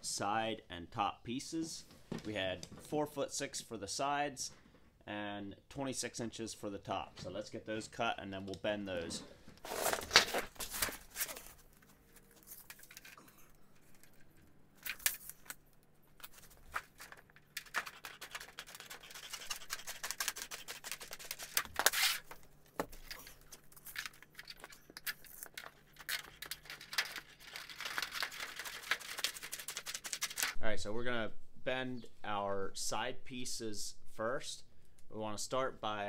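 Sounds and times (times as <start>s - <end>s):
metal coil crinkling: 9.6s - 30.6s.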